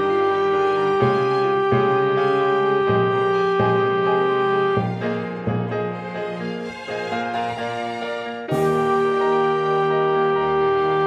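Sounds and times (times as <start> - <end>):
foghorn blast: 0.0 - 5.0, 8.5 - 11.0.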